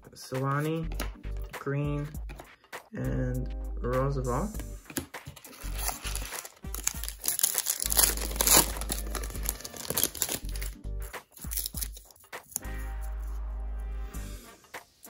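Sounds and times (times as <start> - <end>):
background music: 0.0 - 15.0
wrapper crinkling and tearing: 5.4 - 12.6.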